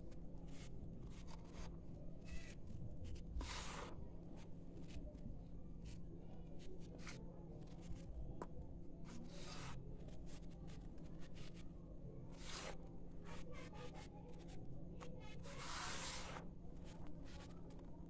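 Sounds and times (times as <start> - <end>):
grainy powder scratching: 3.2 - 4.0, 9.1 - 10.8, 12.3 - 13.4, 15.5 - 17.5
hands swishing through powder: 3.4 - 4.0, 15.5 - 16.4.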